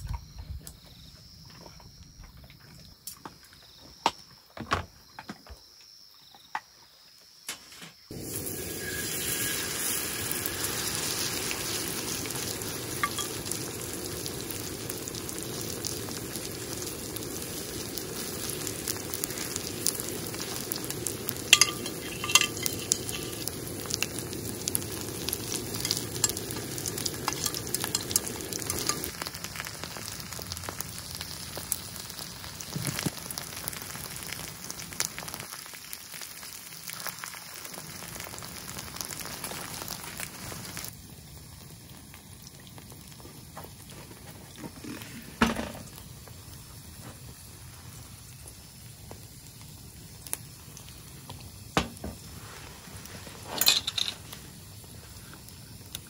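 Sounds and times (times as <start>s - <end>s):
food sizzling in hot oil: 8.0s - 56.0s.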